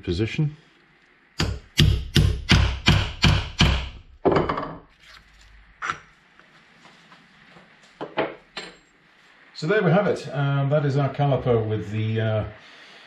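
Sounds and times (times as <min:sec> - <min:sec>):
hammer tapping metal: 0:01.4 - 0:04.6.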